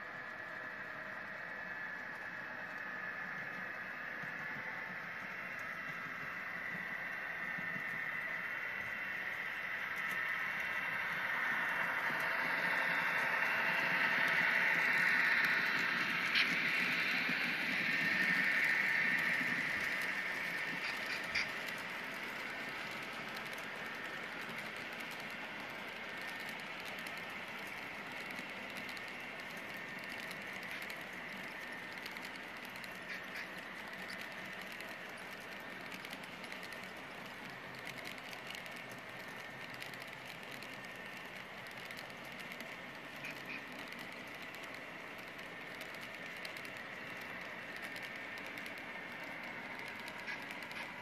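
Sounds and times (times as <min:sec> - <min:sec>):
model train rolling hiss and hum: 0:00.0 - 0:51.0
wheels clicking over rail: 0:12.0 - 0:51.0.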